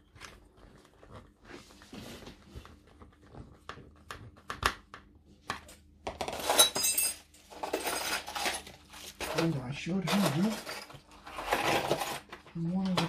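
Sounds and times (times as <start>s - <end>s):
parts rattling and rustling: 5.7s - 13.0s.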